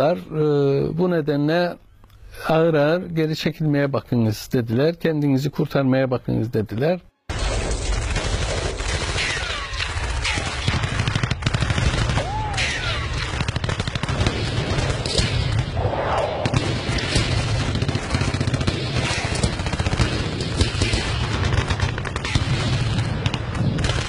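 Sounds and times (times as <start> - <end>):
rifle and machine-gun fire: 7.3 - 24.0
low rumble: 14.2 - 18.1.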